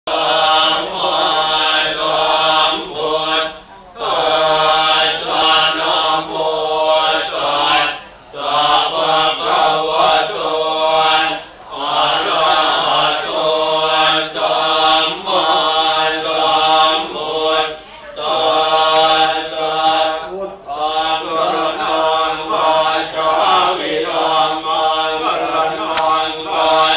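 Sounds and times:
monks chanting in unison: 0.1 - 26.9.

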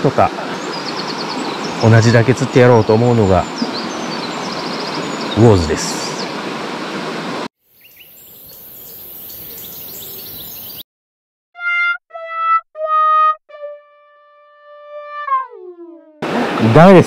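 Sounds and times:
bird chirps: 7.7 - 10.8
sad trombone sound effect: 11.6 - 16.2.

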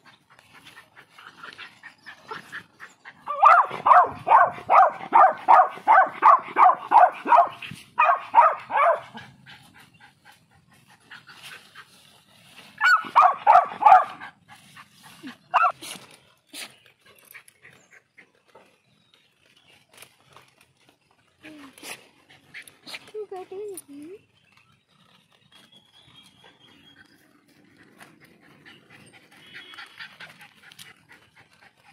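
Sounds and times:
puppy barking: 3.3 - 9.2, 12.8 - 14.3, 15.5 - 15.8.

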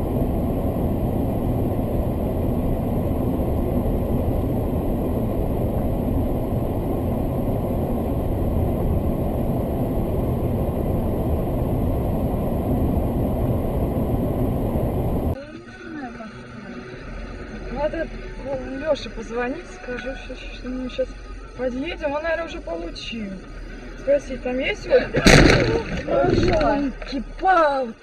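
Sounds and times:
steady low rumble: 0.0 - 15.4.

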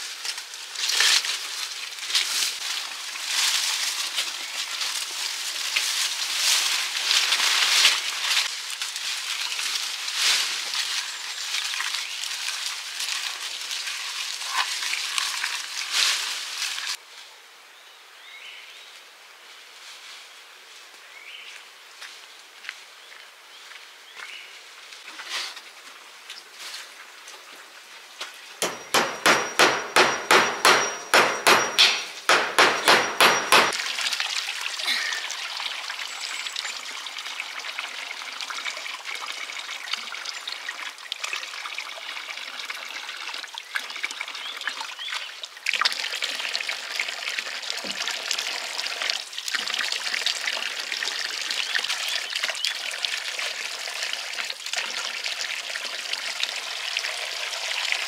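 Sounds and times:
fast sharp knocks: 28.6 - 33.8.

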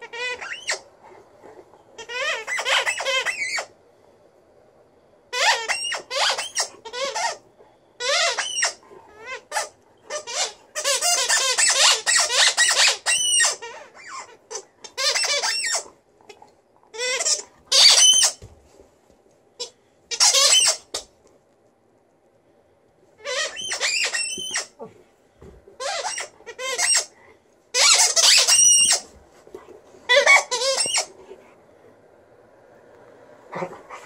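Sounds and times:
rubber squeaky ball squeaking: 0.0 - 0.8, 2.0 - 3.7, 5.4 - 7.4, 8.0 - 15.9, 16.9 - 18.5, 19.6 - 21.1, 23.2 - 24.9, 25.8 - 27.1, 27.8 - 29.2, 30.1 - 31.1.

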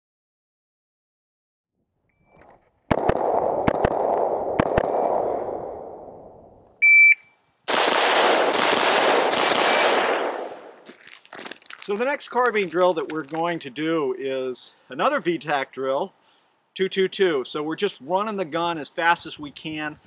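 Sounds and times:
shot timer beep: 6.8 - 7.3
rifle shots: 7.7 - 10.8.

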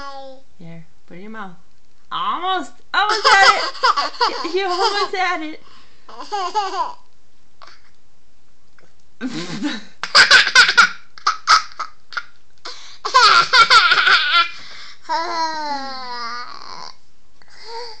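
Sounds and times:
toddler laughing: 3.1 - 5.1, 6.1 - 7.0, 10.0 - 12.3, 13.1 - 16.9.

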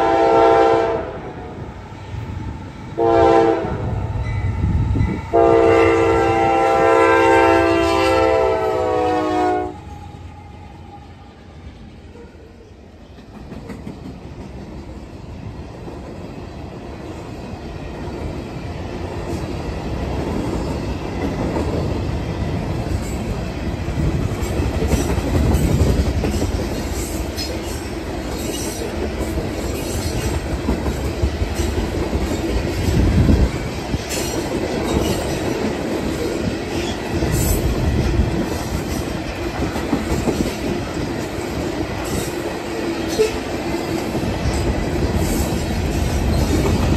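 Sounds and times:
freight train rumble: 0.0 - 46.9
wheels clacking over rail joints: 13.0 - 15.0, 19.2 - 46.9.

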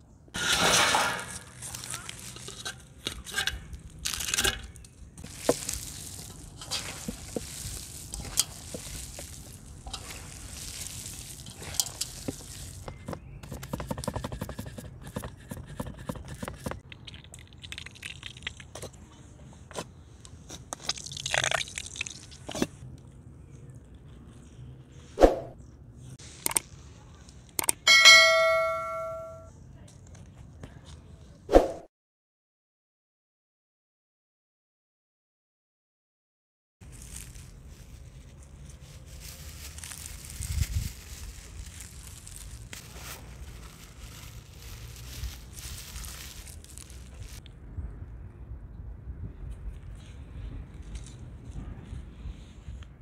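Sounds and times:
scraping: 0.3 - 16.8
metal trays and lids clinking: 0.4 - 4.9
hands working food: 0.4 - 19.0
ringing notification chime: 27.9 - 29.5.

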